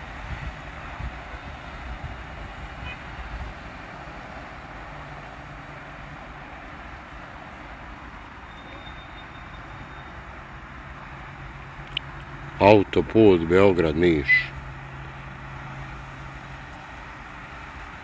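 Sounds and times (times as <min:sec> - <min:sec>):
outdoor rumble and hiss: 0:00.0 - 0:18.0
faint high whistle: 0:08.5 - 0:10.2.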